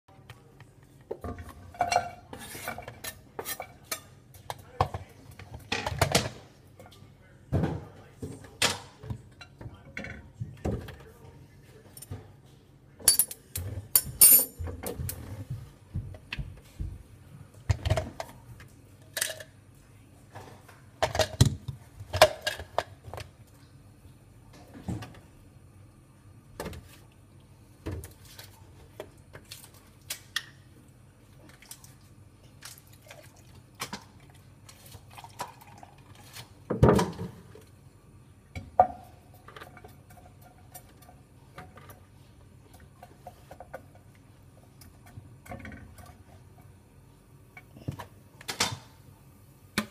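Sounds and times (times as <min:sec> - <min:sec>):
milk pouring into cup: 0:31.4 - 0:36.6.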